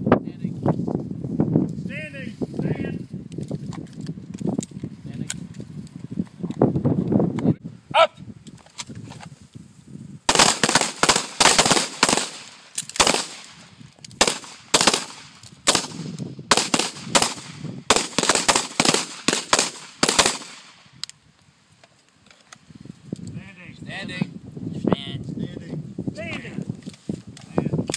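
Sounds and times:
rapid pistol fire: 10.3s - 13.6s, 14.2s - 20.8s.

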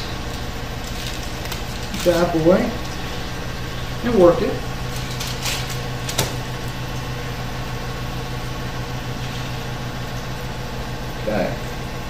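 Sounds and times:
plastic wrap crinkling: 0.0s - 3.4s, 4.6s - 6.8s
low machine hum: 0.0s - 12.0s.

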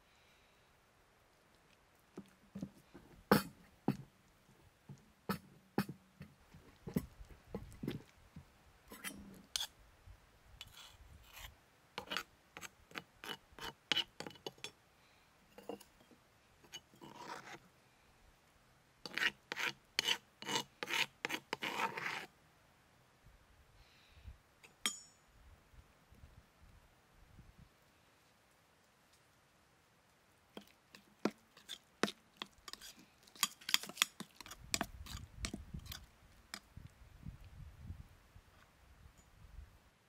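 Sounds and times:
utensil scraping and rubbing: 10.6s - 14.4s, 16.7s - 17.6s, 19.1s - 22.3s, 30.6s - 36.6s.

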